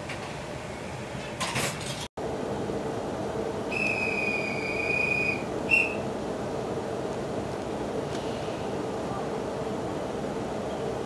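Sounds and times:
train interior hum: 0.0 - 11.0
high steady tone: 3.7 - 6.1.

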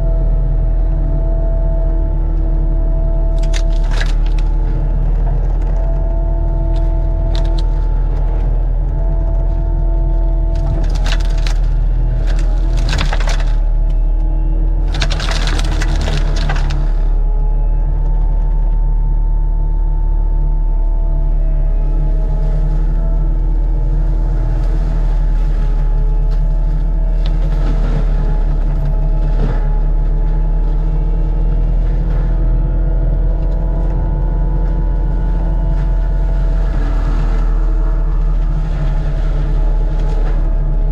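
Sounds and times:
diesel engine under load: 0.0 - 40.9
mulcher grinding brush and wood: 3.3 - 17.8, 21.6 - 40.9
loud crackling bursts: 14.9 - 17.1.

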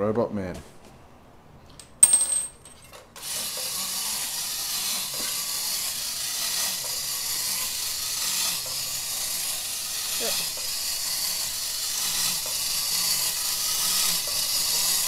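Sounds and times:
toy robot mechanism hissing: 3.2 - 15.0.

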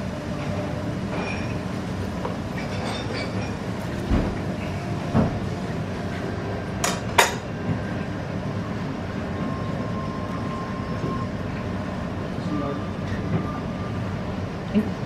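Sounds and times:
tableware clinking: 0.4 - 1.7, 2.5 - 3.7.

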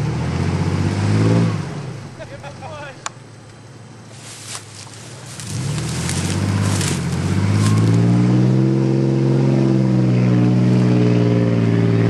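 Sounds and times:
truck engine revving: 0.0 - 3.3, 3.9 - 12.0.

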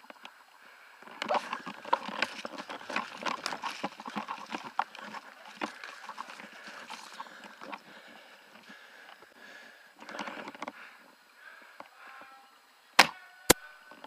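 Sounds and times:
footsteps crunching on forest floor: 1.0 - 9.3
brush rustling against clothing: 1.2 - 7.8.

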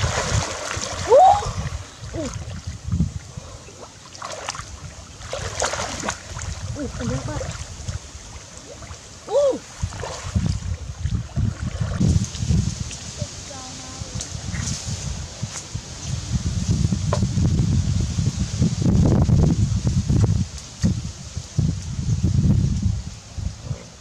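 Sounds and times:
water splashing and sloshing: 0.0 - 16.4.

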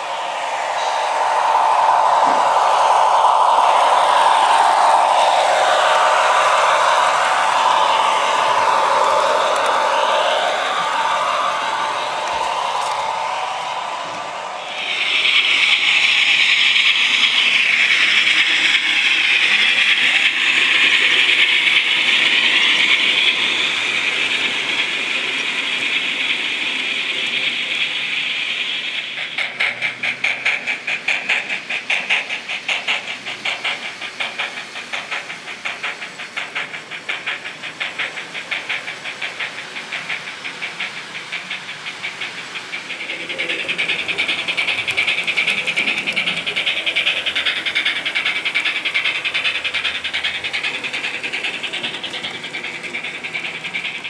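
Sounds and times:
rapid exhaust chuffs: 0.0 - 54.0
steam hiss from small speaker: 0.0 - 54.0.

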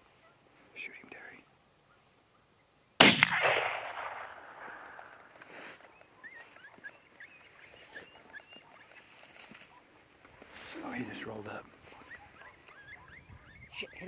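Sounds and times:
gunshot with rolling echo: 3.0 - 5.2.

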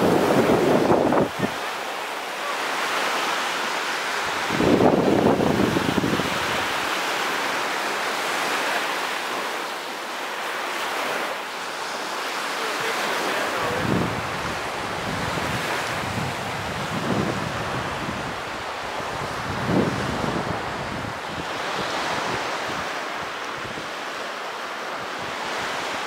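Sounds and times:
wind buffeting microphone: 0.0 - 1.7, 4.1 - 6.9, 13.6 - 24.0
surf washing onto sandy beach: 0.0 - 26.0.

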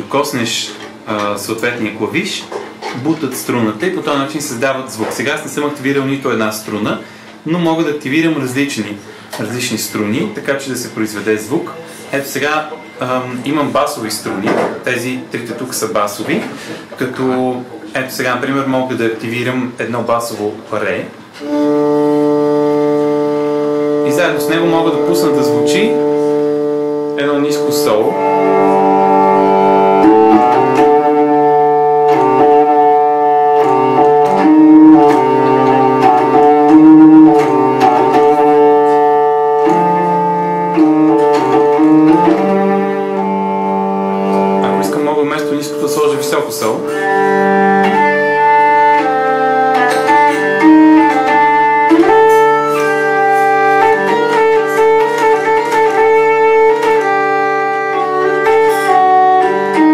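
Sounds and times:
hurdy-gurdy drone and melody: 21.3 - 59.9.

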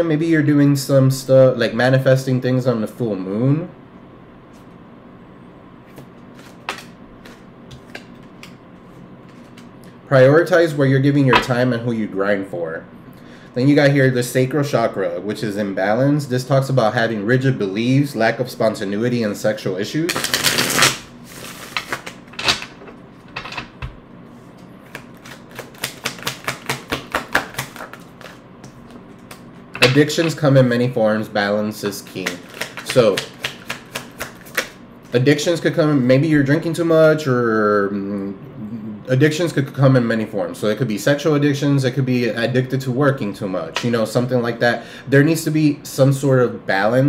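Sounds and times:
faint room hum: 0.0 - 47.0
cards shuffling and snapping: 5.9 - 8.6, 9.2 - 9.7, 20.1 - 22.7, 24.8 - 30.4, 32.1 - 34.8.

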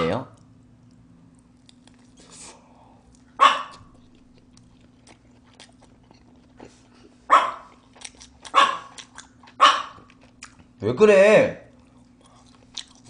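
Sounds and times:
faint chewing clicks: 0.4 - 2.3, 3.0 - 10.8, 11.7 - 13.0
small dog barking: 3.4 - 3.9, 7.3 - 7.8, 8.4 - 10.1.

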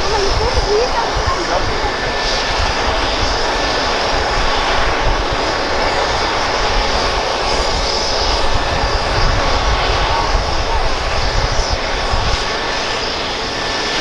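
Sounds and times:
helicopter rotor rushing: 0.0 - 14.0
turbine whine: 0.0 - 14.0.

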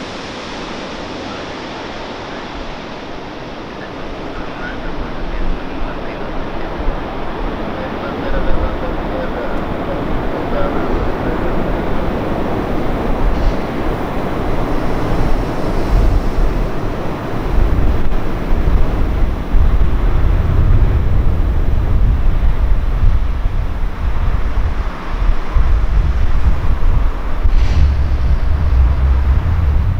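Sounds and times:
deep rumble of reverse thrust: 0.0 - 6.1, 11.2 - 23.5, 25.3 - 29.9
jet engines rushing: 0.0 - 29.9.

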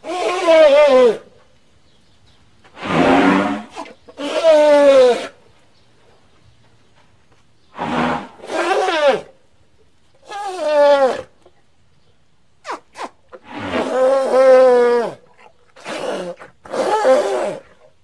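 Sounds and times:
mammoth calls: 0.0 - 1.3, 2.8 - 5.4, 7.7 - 9.3.

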